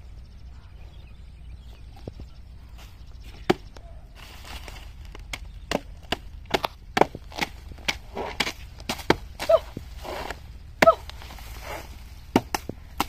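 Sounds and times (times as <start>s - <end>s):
blade chopping tree trunk: 3.3s - 3.8s, 4.6s - 13.0s.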